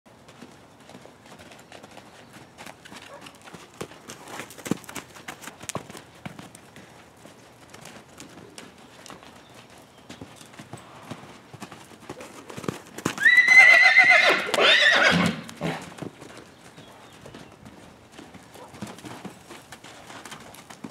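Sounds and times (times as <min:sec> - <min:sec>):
hooves thudding on dirt: 0:00.1 - 0:20.9
horse whinnying: 0:13.2 - 0:15.8.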